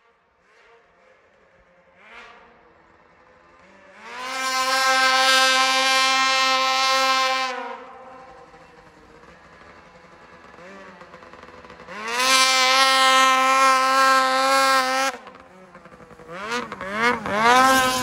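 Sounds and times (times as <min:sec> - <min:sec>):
snowmobile engine at full throttle: 0:00.0 - 0:18.0.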